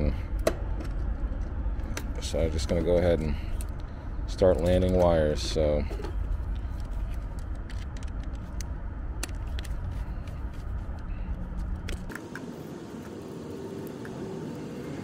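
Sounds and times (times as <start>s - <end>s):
steady low engine rumble: 0.0s - 15.0s.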